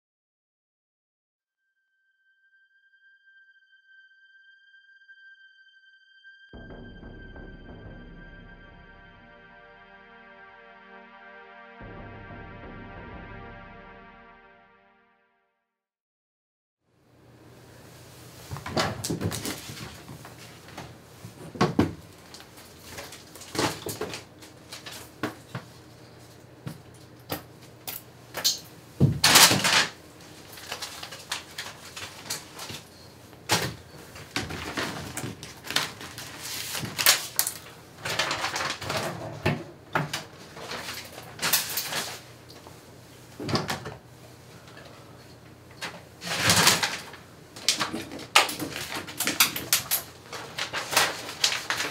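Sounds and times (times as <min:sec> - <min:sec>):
papers rustling: 0:18.5 - 0:26.2, 0:29.2 - 0:39.5, 0:40.2 - 0:42.3, 0:46.2 - 0:51.9.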